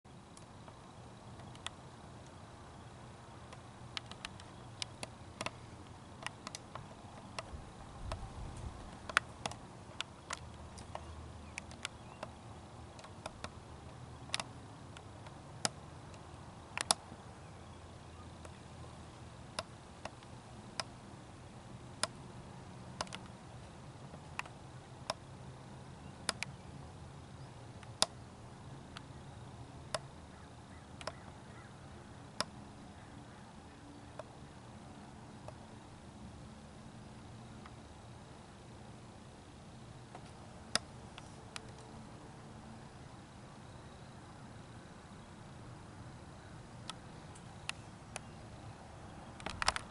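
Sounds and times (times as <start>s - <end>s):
sharp clicks: 0.3s - 2.8s, 3.4s - 17.2s, 19.4s - 21.0s, 22.0s - 22.2s, 22.9s - 25.3s, 26.0s - 26.6s, 27.4s - 28.2s, 30.9s - 31.4s, 40.0s - 41.9s, 46.7s - 48.4s, 49.3s - 49.9s.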